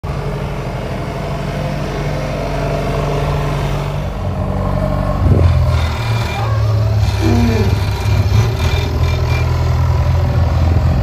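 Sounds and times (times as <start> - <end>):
diesel engine droning: 0.0 - 11.0.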